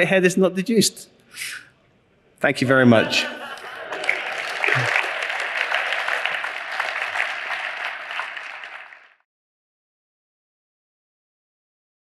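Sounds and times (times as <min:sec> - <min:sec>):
audience applauding: 0:03.4 - 0:09.2.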